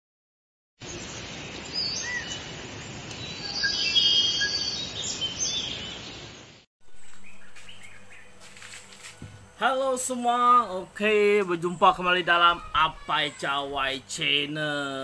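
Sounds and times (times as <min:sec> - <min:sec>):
birds chirping and whistling: 0:01.7 - 0:02.4, 0:03.2 - 0:06.2, 0:07.1 - 0:08.4
steady background hiss: 0:06.9 - 0:15.0.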